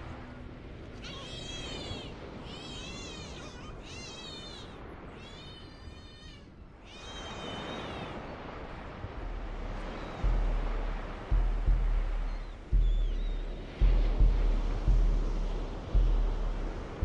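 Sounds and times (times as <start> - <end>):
steady background hiss: 0.0 - 17.0
cat meowing: 1.0 - 8.0.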